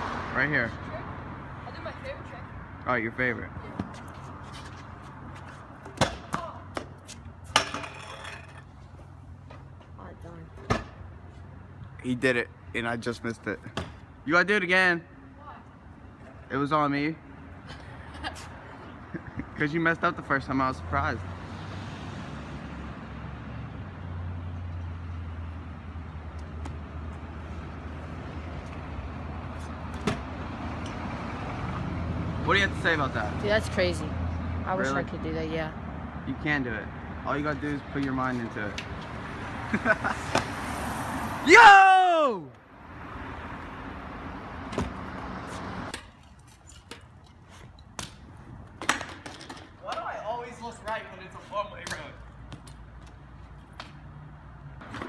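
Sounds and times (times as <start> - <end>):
scooter wheels rolling on concrete: 3.2 - 11.5, 36.6 - 42.2, 43.1 - 54.2
scooter landing clack: 7.5 - 8.7, 48.8 - 50.0.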